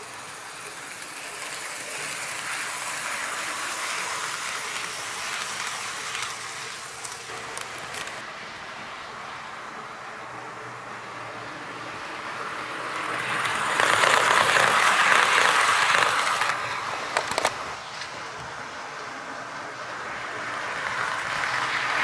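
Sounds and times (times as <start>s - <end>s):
model train wheels rumbling: 0.0s - 8.2s, 12.0s - 22.0s
sharp clicks: 13.8s - 17.6s.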